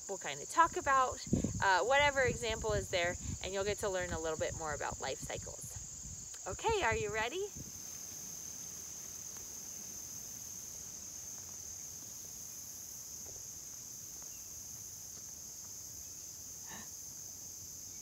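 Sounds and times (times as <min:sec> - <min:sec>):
crickets trilling: 0:00.0 - 0:18.0.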